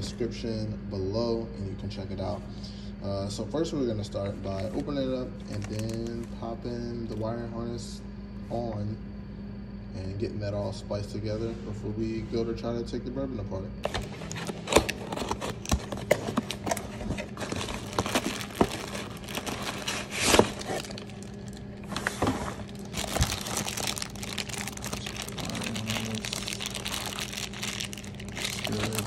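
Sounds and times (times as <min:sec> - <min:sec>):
faint low hum: 0:00.0 - 0:29.0
plastic packaging crinkling: 0:04.5 - 0:06.4, 0:13.8 - 0:29.0
cardboard box opening: 0:13.8 - 0:29.0.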